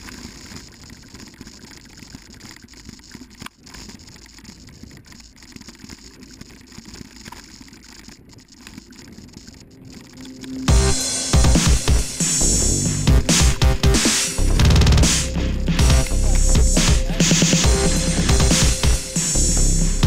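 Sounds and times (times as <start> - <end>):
bike tyres on dirt trail: 0.0 - 11.0
loud music: 10.7 - 20.0.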